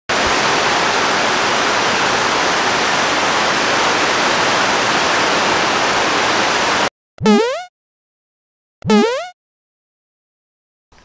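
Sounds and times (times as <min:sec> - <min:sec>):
rain falling: 0:00.1 - 0:06.9.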